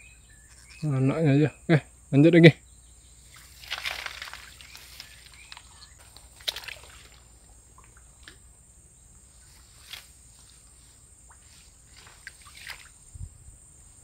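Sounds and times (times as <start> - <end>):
sharp splash: 3.3 - 8.4, 11.3 - 13.0
small splashes in water: 3.3 - 8.5, 9.5 - 13.1.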